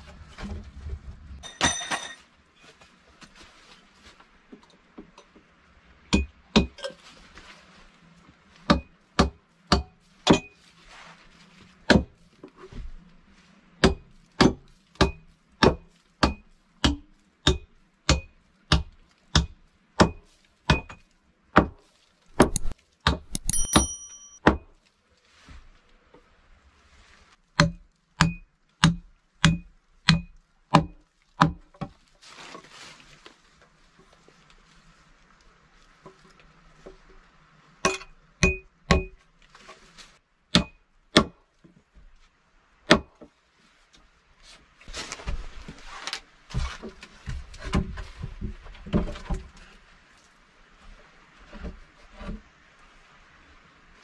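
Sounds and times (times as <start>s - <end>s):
metallic jingle: 1.4s - 2.2s, 23.3s - 24.4s
hammer driving nails into wood: 22.4s - 23.9s.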